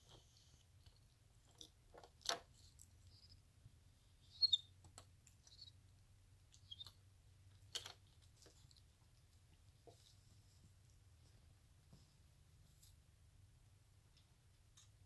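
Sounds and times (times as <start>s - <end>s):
monkey high chirps: 4.3s - 4.7s, 5.4s - 5.8s, 6.5s - 7.0s.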